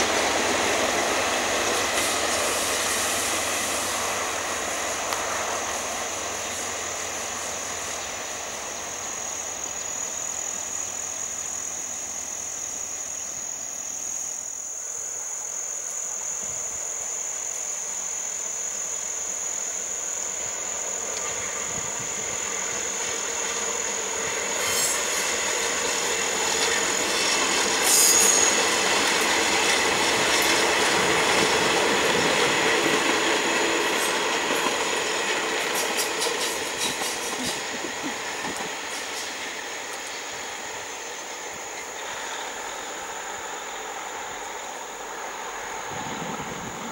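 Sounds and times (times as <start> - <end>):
diesel train passing: 0.0 - 46.9
train wheels knocking: 23.6 - 39.6.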